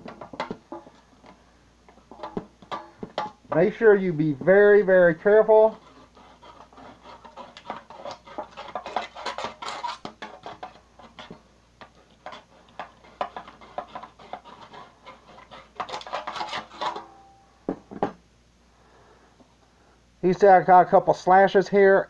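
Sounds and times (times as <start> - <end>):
knife scraping sheet metal: 5.4 - 17.4.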